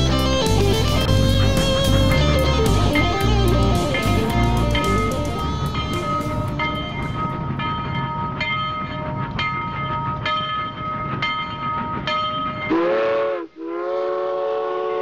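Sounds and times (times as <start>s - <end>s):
train bell ringing: 0.0s - 13.0s
train rumble: 0.0s - 15.0s
multi-note train horn: 12.7s - 15.0s.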